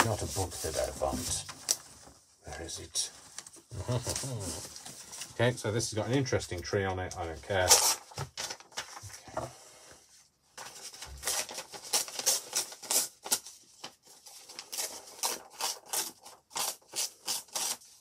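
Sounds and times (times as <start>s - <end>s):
paper page tearing: 7.5s - 9.0s, 10.6s - 13.6s, 14.2s - 18.0s.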